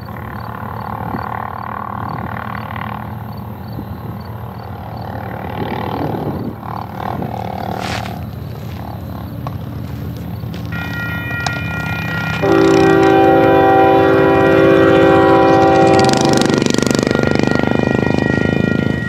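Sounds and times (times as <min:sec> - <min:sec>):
locomotive air horn blasts: 0:10.7 - 0:19.0.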